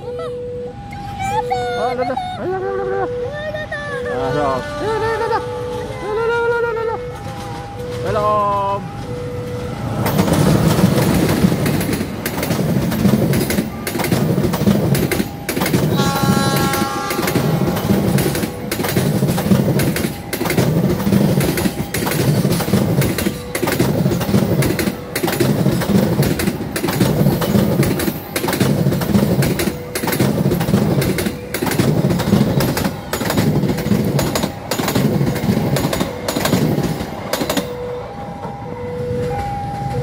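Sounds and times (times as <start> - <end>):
two-tone crossing alarm: 0.0 - 40.0
train wheels clattering over rail joints: 7.0 - 38.6.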